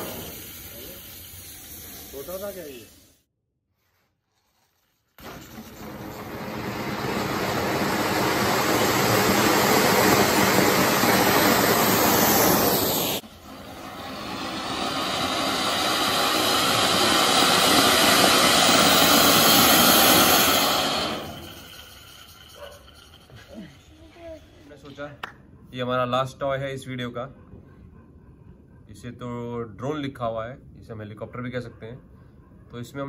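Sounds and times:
firework hissing: 0:00.0 - 0:03.3, 0:04.8 - 0:24.6.

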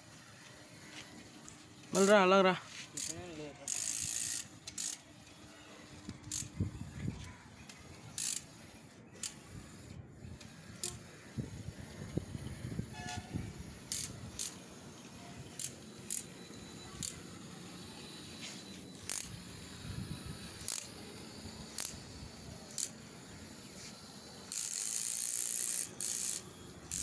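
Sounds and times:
small gear motors running: 0:00.2 - 0:27.0
sharp irregular clicks: 0:24.5 - 0:27.0.

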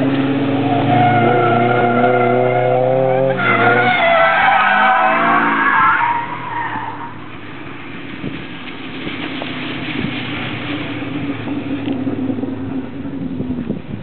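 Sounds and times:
tyres squealing: 0:00.5 - 0:07.2.

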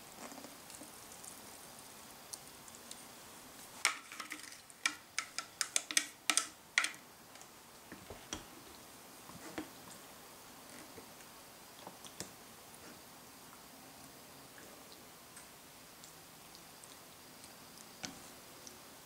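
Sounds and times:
chopsticks stirring meat: 0:03.8 - 0:07.5.

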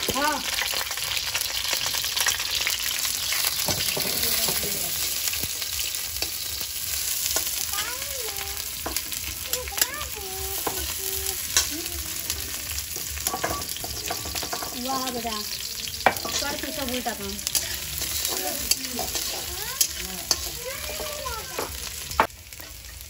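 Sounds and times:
onions sizzling in oil: 0:00.0 - 0:23.0
metal spatula scraping pan: 0:12.9 - 0:22.9.

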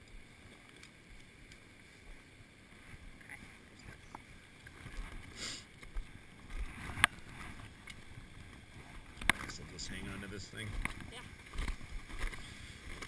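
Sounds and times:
clothing and gear rustling: 0:04.7 - 0:13.0.

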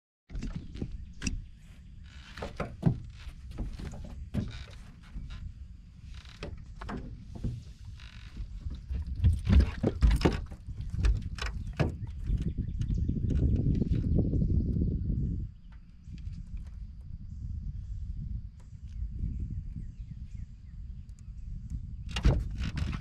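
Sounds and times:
knocks and thumps on boat deck: 0:00.3 - 0:14.1, 0:22.1 - 0:23.0.

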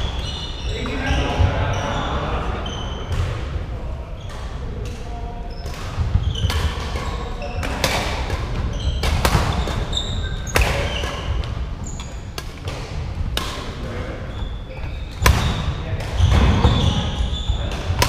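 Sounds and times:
shoes squeaking on wooden floor: 0:00.0 - 0:03.1, 0:05.5 - 0:07.8, 0:08.6 - 0:12.4, 0:14.2 - 0:18.0
rackets hitting shuttlecock: 0:04.3 - 0:13.9, 0:15.1 - 0:18.0.

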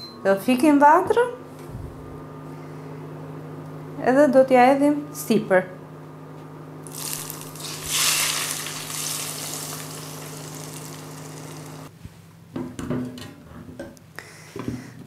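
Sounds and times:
steady low hum: 0:00.0 - 0:12.4
hot oil sizzling: 0:06.8 - 0:11.9.

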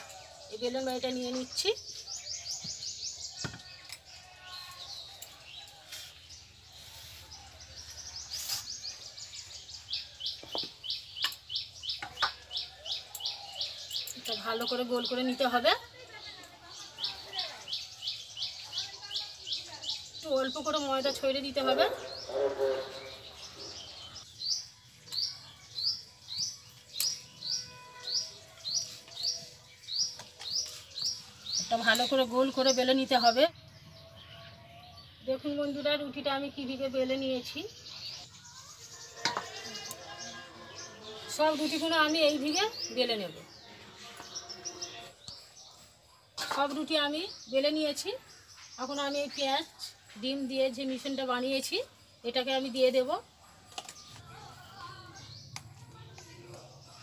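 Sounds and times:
bird chirping: 0:00.0 - 0:15.6, 0:16.3 - 0:57.0.

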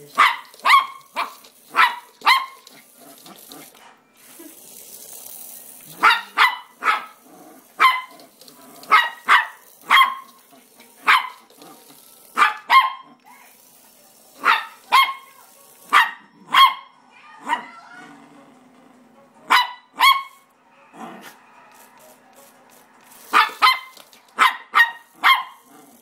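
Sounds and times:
puppy barking high-pitched: 0:00.1 - 0:02.8, 0:05.9 - 0:07.2, 0:07.8 - 0:08.2, 0:08.8 - 0:10.3, 0:11.0 - 0:11.5, 0:12.3 - 0:13.2, 0:14.4 - 0:17.9, 0:19.5 - 0:20.5, 0:23.3 - 0:25.7.

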